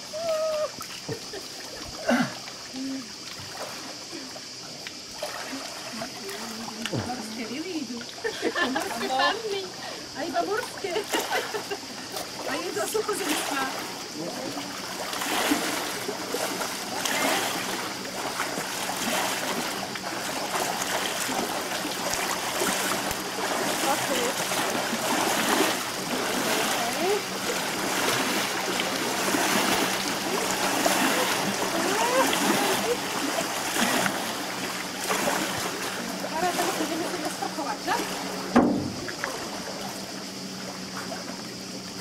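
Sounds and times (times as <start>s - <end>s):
water splashing and sloshing: 0.0s - 42.0s
voices: 5.5s - 15.0s, 22.7s - 38.5s.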